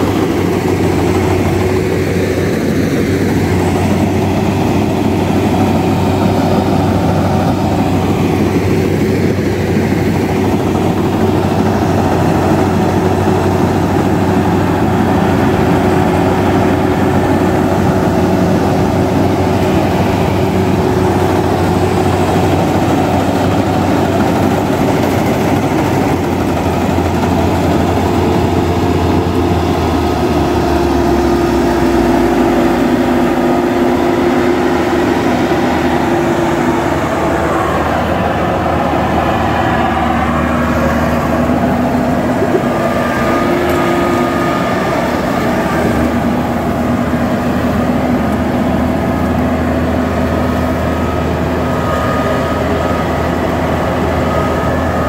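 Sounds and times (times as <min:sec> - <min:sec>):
combine harvester engine drone: 0:00.0 - 0:55.0.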